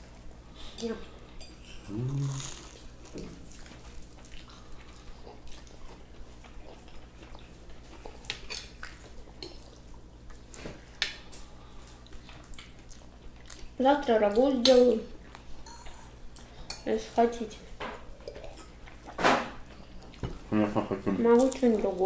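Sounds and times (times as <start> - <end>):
faint steady hum: 0.0 - 22.0
chewing: 1.5 - 13.8, 18.1 - 20.3
murmured voice: 1.8 - 2.5.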